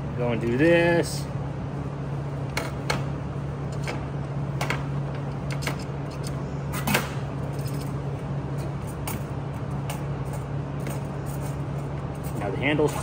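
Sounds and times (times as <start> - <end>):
steady low hum: 0.0 - 13.0
metal tool clicks and clinks: 7.5 - 8.0.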